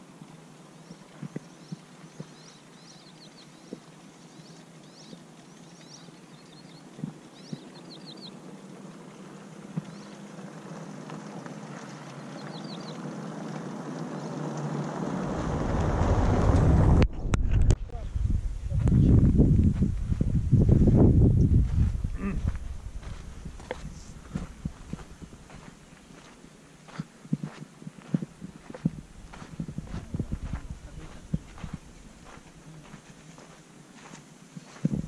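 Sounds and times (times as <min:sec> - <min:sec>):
small birds chirping: 0:00.3 - 0:15.2, 0:21.4 - 0:35.0
wind gust buffeting microphone: 0:15.0 - 0:25.7, 0:28.7 - 0:32.4.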